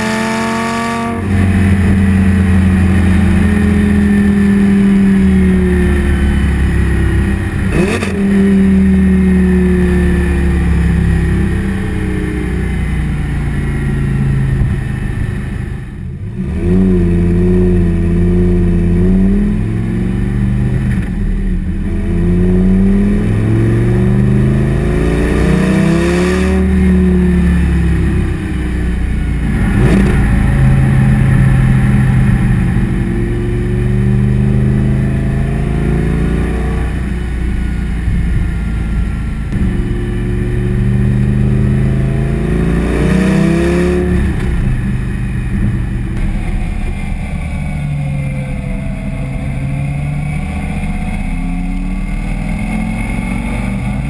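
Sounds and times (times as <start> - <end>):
sports car exhaust revving: 0.0 - 54.0
exhaust pops: 44.1 - 48.6.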